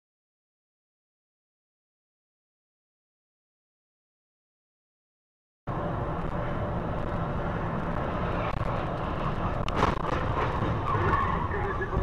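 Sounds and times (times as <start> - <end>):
car road and engine rumble: 5.7 - 12.0.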